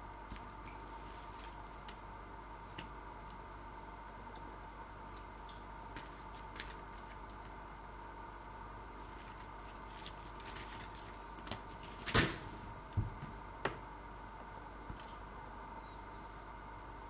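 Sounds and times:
faint steady hum: 0:00.0 - 0:17.0
plastic packaging crinkling: 0:00.3 - 0:02.0, 0:09.0 - 0:12.5.

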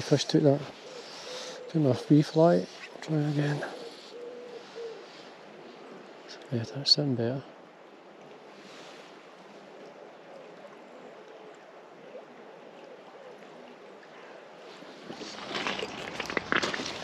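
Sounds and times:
wading footsteps splashing: 0:14.8 - 0:17.0.

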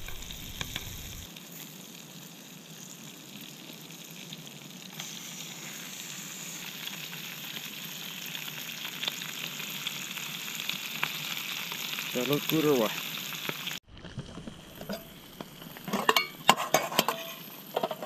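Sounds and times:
faint crackles: 0:00.0 - 0:16.0
butter sizzling in a frying pan: 0:00.0 - 0:18.0.

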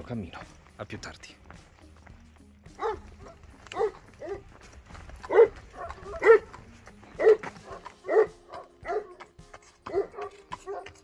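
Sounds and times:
dog barking: 0:02.8 - 0:04.6, 0:05.2 - 0:11.0.

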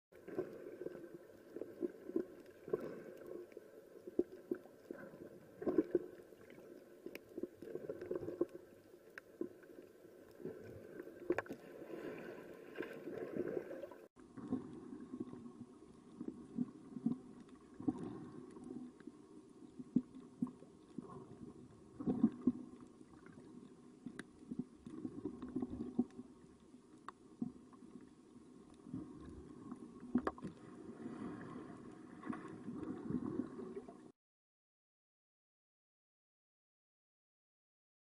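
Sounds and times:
low underwater water rush: 0:00.1 - 0:34.2.

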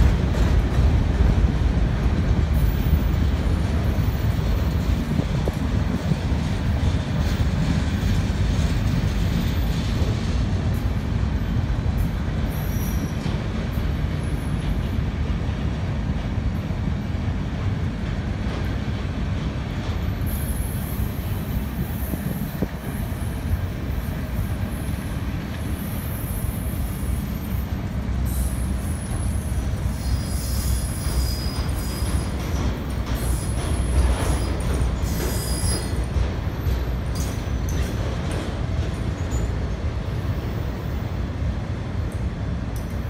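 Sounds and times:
train wheels rumbling on rail: 0:00.0 - 0:43.0
high-pitched wheel squeal: 0:25.8 - 0:32.4, 0:34.3 - 0:36.0.

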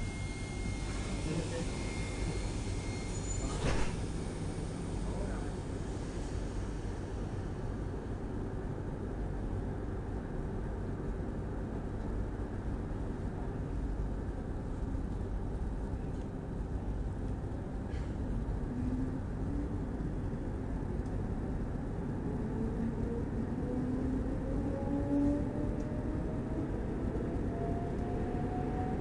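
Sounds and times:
faint whine: 0:00.0 - 0:07.2
train rumbling on track: 0:00.0 - 0:29.0.

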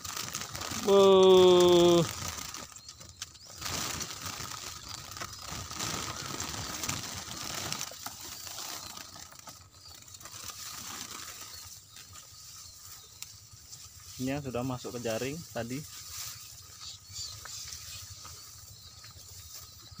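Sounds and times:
birds calling: 0:00.0 - 0:20.0
wings fluttering: 0:00.0 - 0:20.0
rustling and scraping of wire cage: 0:02.1 - 0:14.4.

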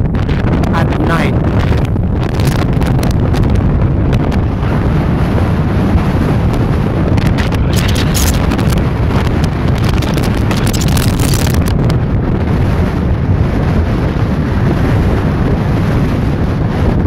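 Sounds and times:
wind buffeting microphone: 0:00.0 - 0:17.0
sharp crackles: 0:07.2 - 0:11.8.

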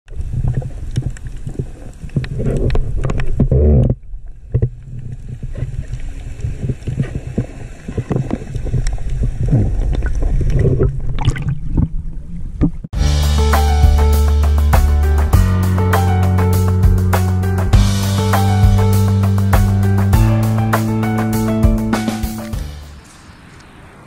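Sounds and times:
underwater clicks and knocks: 0:00.1 - 0:12.9
water gurgling: 0:00.1 - 0:12.9
underwater rumble: 0:00.1 - 0:13.0.

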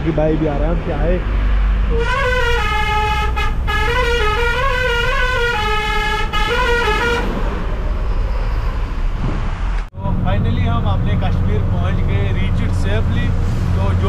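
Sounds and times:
truck engine drone: 0:00.0 - 0:14.0
musical vehicle horn: 0:01.9 - 0:07.8.

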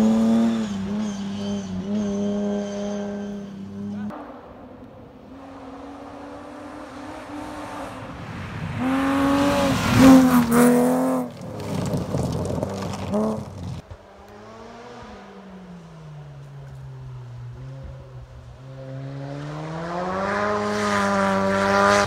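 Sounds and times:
rally car engine revving: 0:00.0 - 0:04.5, 0:05.1 - 0:15.9, 0:16.7 - 0:22.0
distant rally car engine: 0:00.0 - 0:22.0
tyres on gravel: 0:08.8 - 0:14.5.

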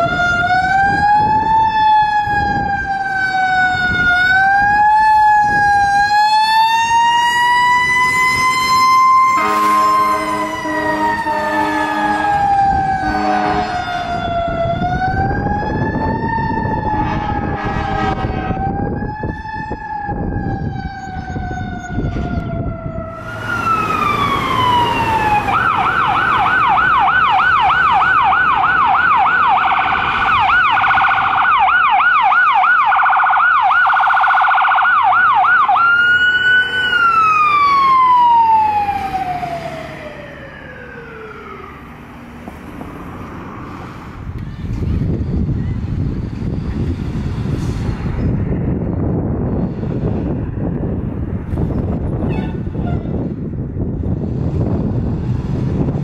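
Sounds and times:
yelping siren: 0:00.0 - 0:42.3
wailing siren: 0:00.0 - 0:43.3
vehicle horn blasts: 0:09.4 - 0:12.2, 0:13.0 - 0:13.8, 0:17.1 - 0:18.6.

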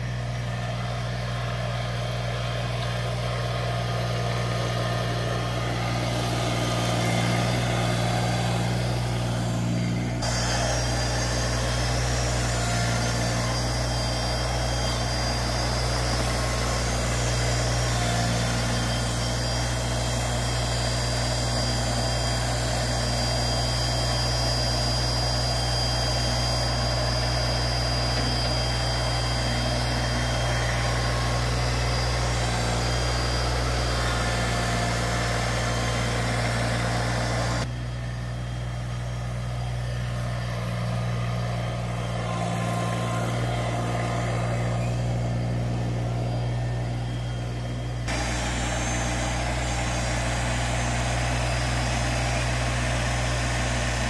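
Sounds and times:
thin high whine: 0:00.0 - 0:38.0, 0:39.8 - 0:54.0
tractor diesel engine running: 0:00.0 - 0:54.0.

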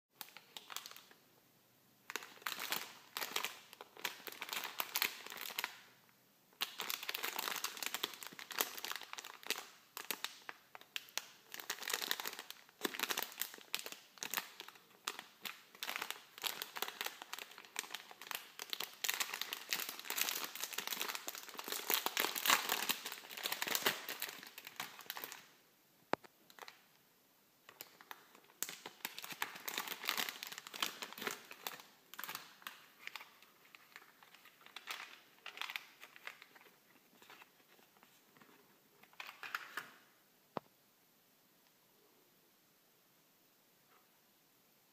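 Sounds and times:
foil snack packet crinkling: 0:06.6 - 0:25.5, 0:27.7 - 0:40.0.

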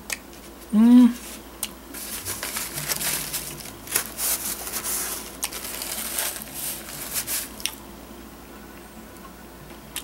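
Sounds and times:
person chewing crunchy food: 0:00.0 - 0:07.8.

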